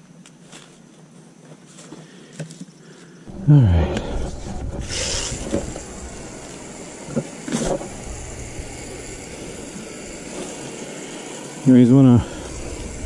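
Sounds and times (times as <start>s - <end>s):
hose sprayer hissing: 3.3s - 13.0s.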